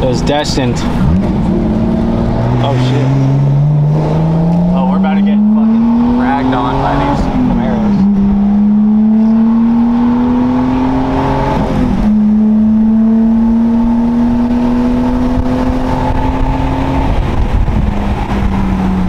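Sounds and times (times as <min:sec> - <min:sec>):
car engine accelerating: 0:00.0 - 0:19.0.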